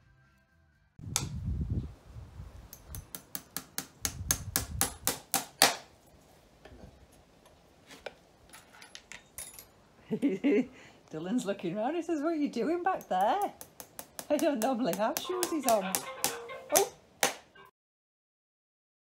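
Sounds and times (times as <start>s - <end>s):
hammer tapping nails: 2.7s - 5.8s, 13.0s - 17.4s.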